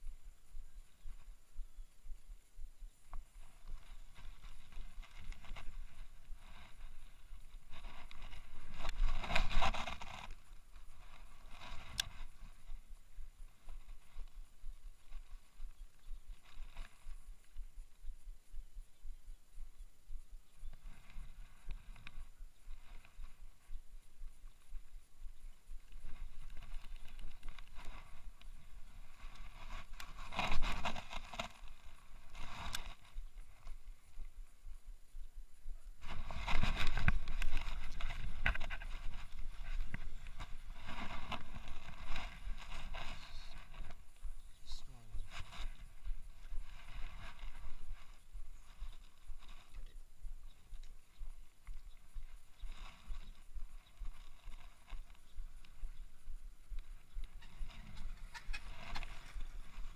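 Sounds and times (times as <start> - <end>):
rustling scrape of fishing reel: 3.6 - 12.9, 25.9 - 33.8, 36.0 - 44.2.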